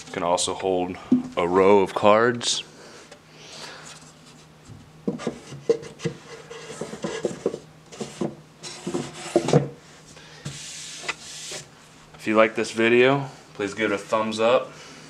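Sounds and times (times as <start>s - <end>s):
wooden drawer scraping and knocking: 6.7s - 9.8s.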